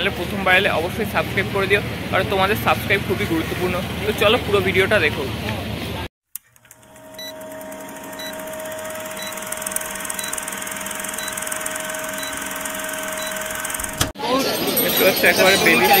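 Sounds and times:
short blips: 6.3 - 14.1
film projector whirring: 6.4 - 14.2.

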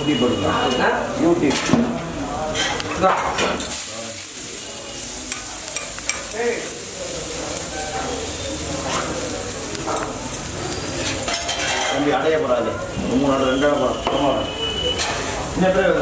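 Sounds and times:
food sizzling on a griddle: 0.0 - 16.0
metal spatula scraping: 8.8 - 12.2.

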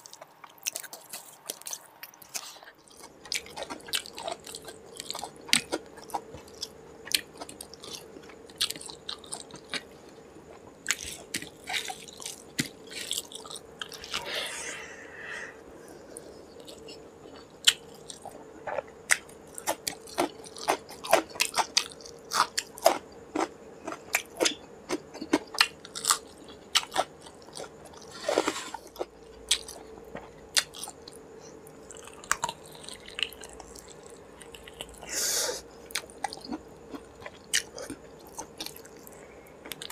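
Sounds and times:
breathy sucking sounds: 14.0 - 16.3.

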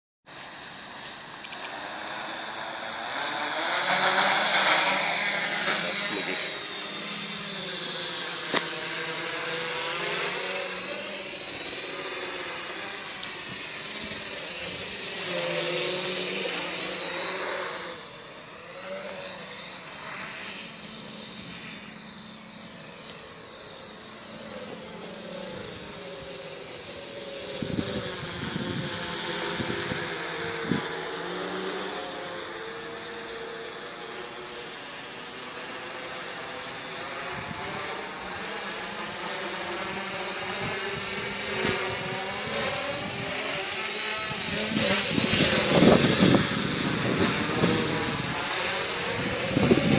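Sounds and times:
drone propellers whining: 0.3 - 49.9.

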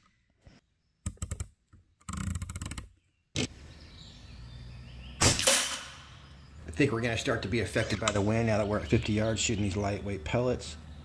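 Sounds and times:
air rifle shot: 5.2 - 6.1.

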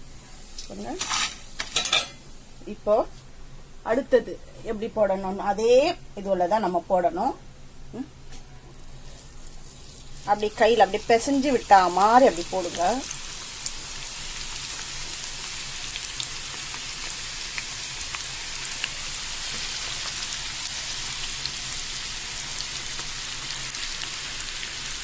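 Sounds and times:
batter deep-frying in oil: 8.7 - 25.0.

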